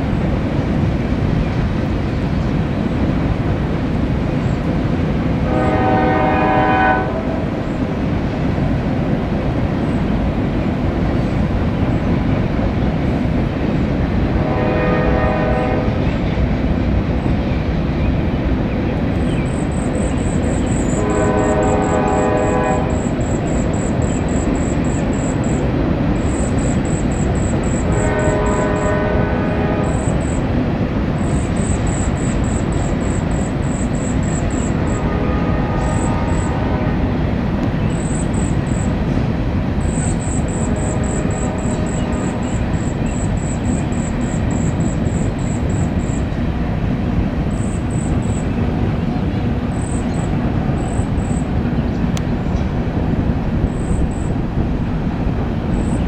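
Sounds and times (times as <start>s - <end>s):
freight train rolling over bridge: 0.0s - 56.0s
locomotive air horn: 5.4s - 7.5s, 14.4s - 16.0s, 20.8s - 23.2s, 27.8s - 30.4s, 34.8s - 37.1s, 40.5s - 42.9s.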